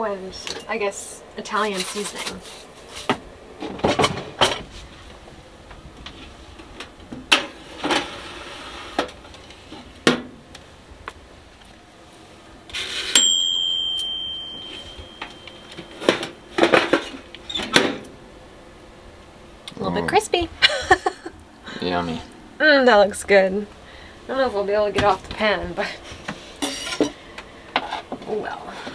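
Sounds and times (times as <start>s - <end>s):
timer bell ding: 13.2s - 16.4s
pans and utensils clattering: 26.6s - 27.2s.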